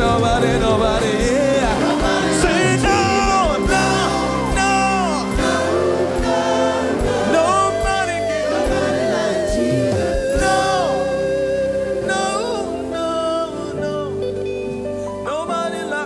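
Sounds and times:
drums: 0.0s - 12.8s
backing vocalists singing: 0.0s - 14.2s
bass guitar: 0.0s - 16.0s
keyboards: 0.0s - 16.0s
lead singer: 0.0s - 16.0s.

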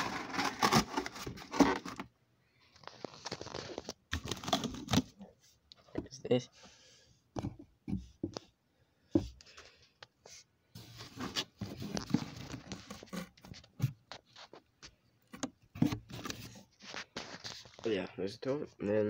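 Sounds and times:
cardboard scraping and rustling: 0.0s - 2.1s, 10.8s - 14.6s, 15.7s - 17.8s.

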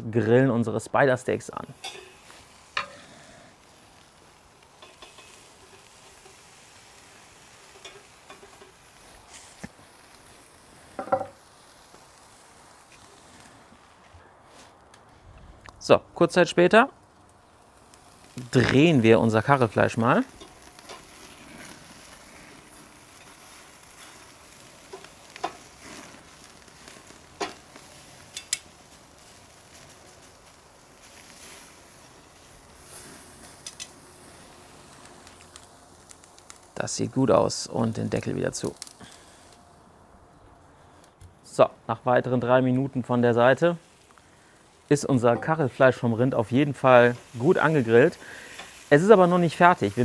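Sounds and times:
steaks sizzling on a grill: 1.4s - 13.9s, 16.8s - 39.9s, 43.0s - 50.0s
sharp clicks of turning steaks: 20.4s - 21.2s, 28.3s - 28.7s, 33.6s - 34.0s.

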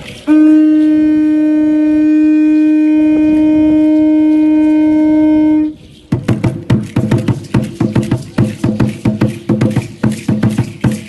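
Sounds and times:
conch shell trumpet note: 0.2s - 5.8s
drum beating quickly: 6.1s - 11.0s.

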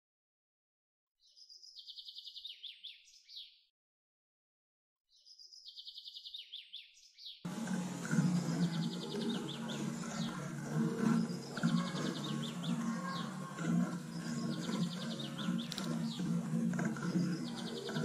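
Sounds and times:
songbird singing: 1.2s - 3.6s, 5.1s - 18.0s
low hum: 7.5s - 18.0s.

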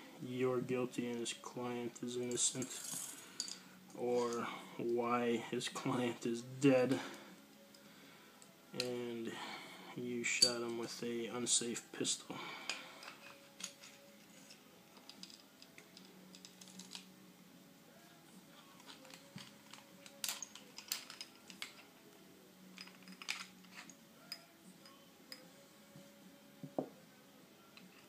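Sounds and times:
metal clicks and scrapes: 22.8s - 24.0s.

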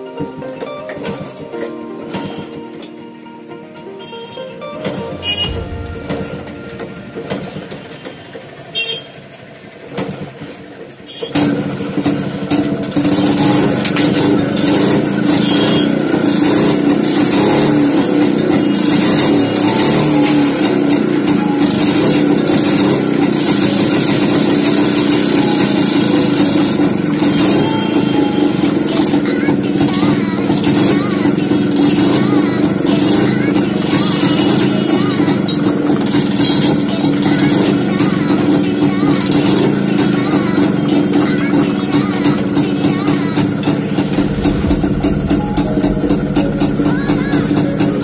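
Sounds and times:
two-stroke motorcycle engine running: 11.1s - 48.0s.

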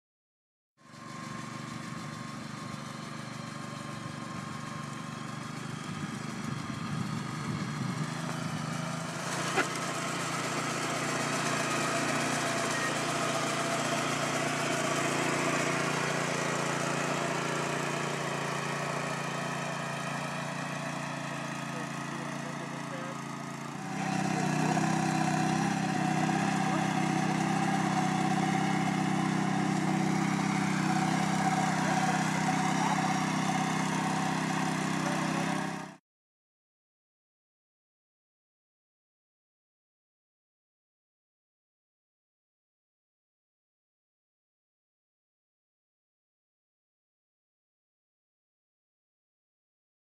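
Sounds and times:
sand cleaner engine running: 0.8s - 36.0s.

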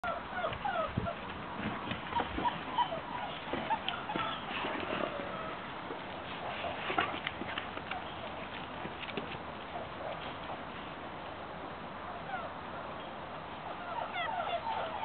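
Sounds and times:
puppies squeaking and whimpering: 0.0s - 5.7s, 13.7s - 15.0s.

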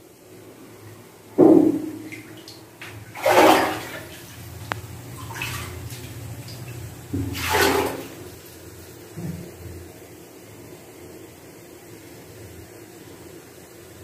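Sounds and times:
feet splashing in shallow water: 5.2s - 6.1s, 7.2s - 8.2s.

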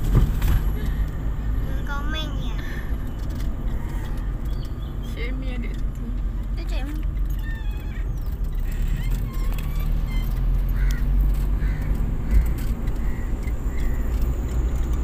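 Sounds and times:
car driving rumble from inside: 0.0s - 15.0s.

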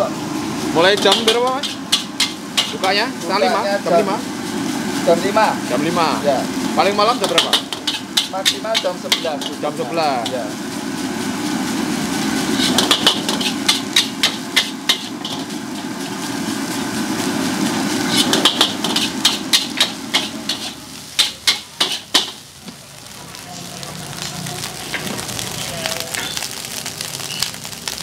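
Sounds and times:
food sizzling: 0.0s - 28.0s
spatula scraping a metal wok: 0.9s - 3.0s, 7.2s - 10.4s, 12.2s - 16.2s, 17.8s - 22.4s.

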